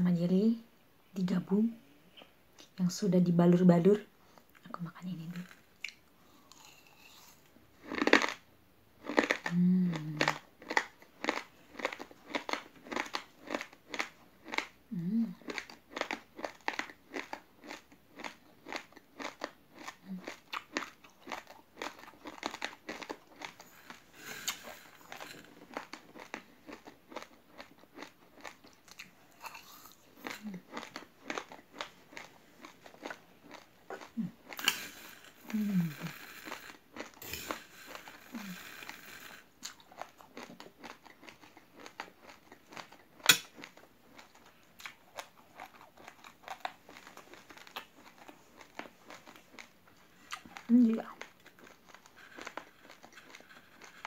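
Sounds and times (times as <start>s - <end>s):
chewing raw rice crunches: 5.3s - 8.4s, 9.0s - 14.8s, 15.4s - 54.0s
person humming: 9.5s - 10.4s, 14.9s - 15.4s, 35.4s - 36.2s, 38.2s - 38.9s.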